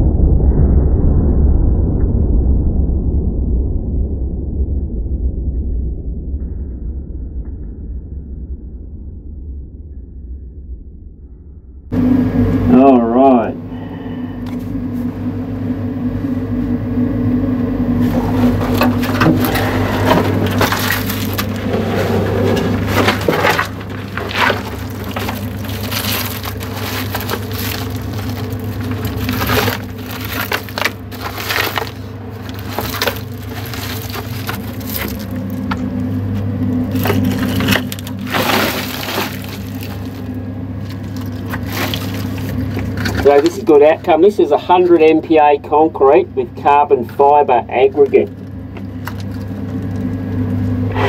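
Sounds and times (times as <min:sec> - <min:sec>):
low machine hum: 0:00.0 - 0:51.0
concrete chunks crunching and scraping: 0:18.0 - 0:45.2, 0:47.0 - 0:50.5.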